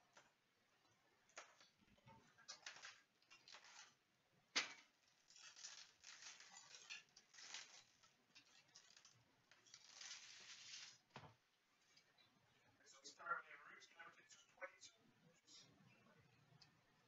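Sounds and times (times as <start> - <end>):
foil wrappers crinkling and tearing: 2.4 - 4.0, 4.6 - 11.1.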